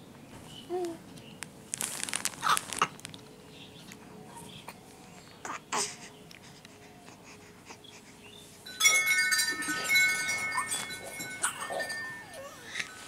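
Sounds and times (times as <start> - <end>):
small metal bells ringing: 8.7 - 13.0.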